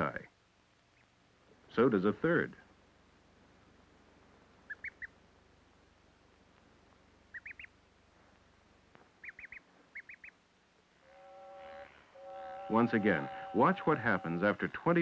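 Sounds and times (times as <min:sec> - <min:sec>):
duckling peeping: 0:00.9 - 0:01.2, 0:04.6 - 0:05.2, 0:07.3 - 0:07.8, 0:09.2 - 0:10.4.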